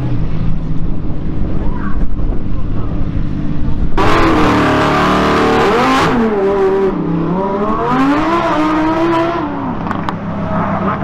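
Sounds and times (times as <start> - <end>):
car engine revving: 3.7 - 11.0.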